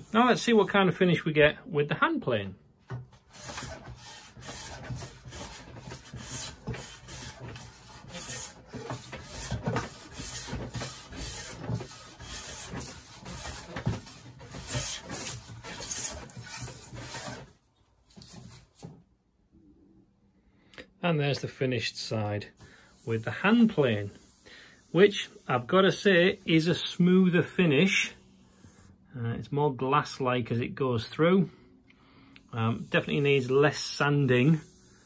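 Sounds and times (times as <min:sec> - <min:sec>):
hand plane rasping strokes on wood: 0:03.2 - 0:17.6.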